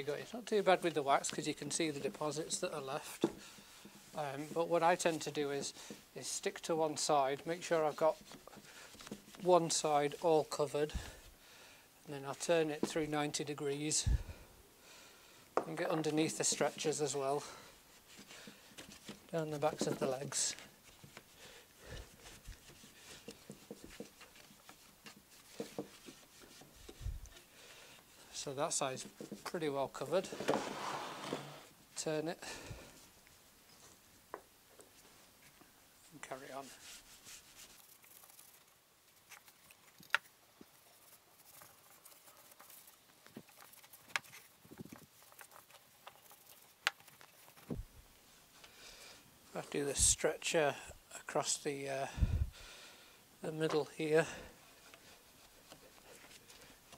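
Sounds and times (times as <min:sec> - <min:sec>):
cloth rag rubbing wood: 0:16.0 - 0:27.5, 0:28.1 - 0:31.7, 0:36.1 - 0:39.4
rag rubbing wood: 0:30.2 - 0:31.7.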